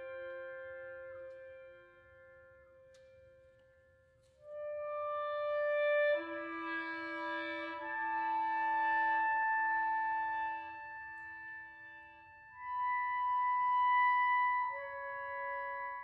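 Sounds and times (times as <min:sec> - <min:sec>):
electric clarinet held notes: 0:04.3 - 0:16.0.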